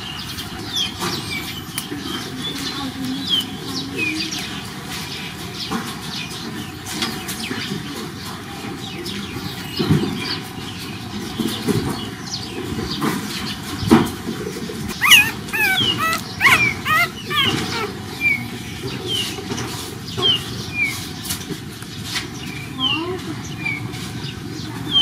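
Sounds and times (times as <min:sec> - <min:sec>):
puppies squeaking: 0:14.9 - 0:19.3.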